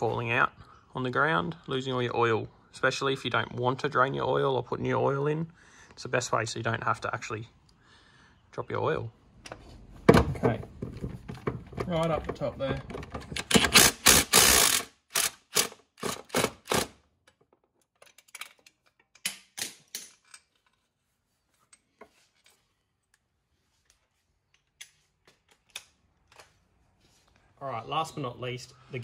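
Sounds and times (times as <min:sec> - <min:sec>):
ratchet wrench clicking: 0:13.6 - 0:15.7.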